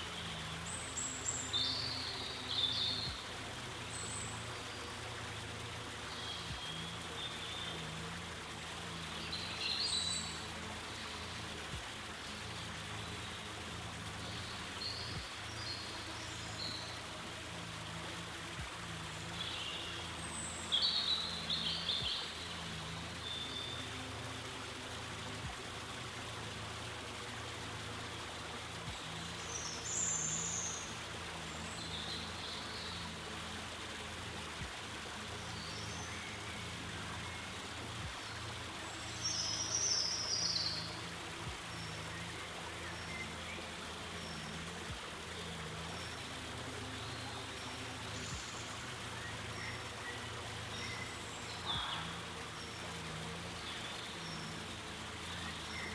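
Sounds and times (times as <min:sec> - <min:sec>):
trickle of running water: 0:00.0 - 0:55.9.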